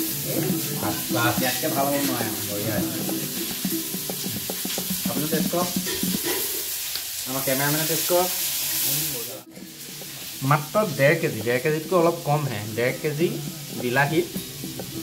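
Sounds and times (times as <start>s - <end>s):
men talking: 0.0s - 3.4s, 5.0s - 5.9s, 7.3s - 14.5s
background music: 0.0s - 6.7s, 7.4s - 15.0s
steady hiss: 0.0s - 15.0s.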